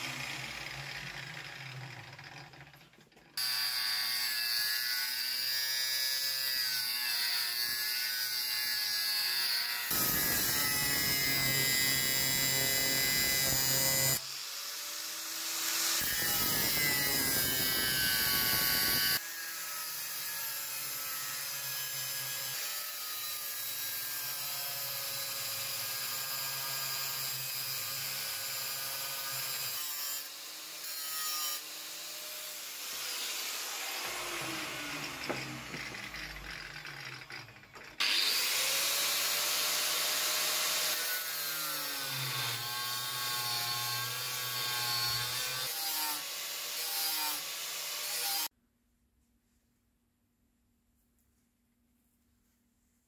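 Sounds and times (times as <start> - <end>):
angle grinder cutting steel: 0.0 - 48.5.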